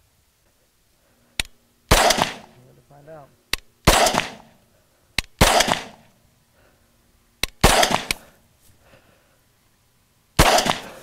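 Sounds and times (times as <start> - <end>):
rifle shots: 1.9 - 2.6, 3.8 - 4.6, 5.2 - 6.1, 7.5 - 8.2, 10.4 - 11.0.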